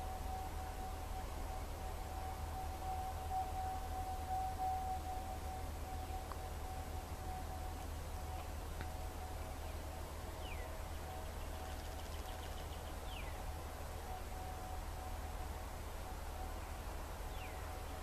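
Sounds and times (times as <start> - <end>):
distant warning siren: 0.0 - 18.0
bird chirps: 9.4 - 13.4, 17.3 - 18.0.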